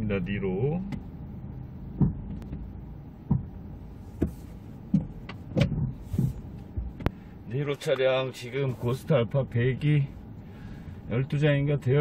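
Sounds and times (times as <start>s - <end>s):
car cabin hum: 0.0s - 12.0s
short knocks and clunks: 1.9s - 7.3s.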